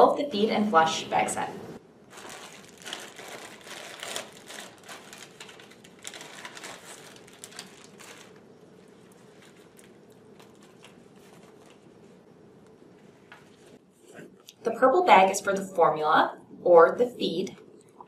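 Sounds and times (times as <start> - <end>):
plastic packaging crinkling: 2.1 - 12.2.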